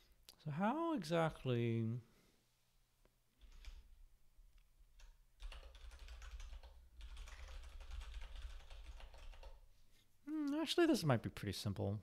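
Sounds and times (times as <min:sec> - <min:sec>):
typing on a keyboard: 0:03.4 - 0:03.9, 0:05.0 - 0:09.6.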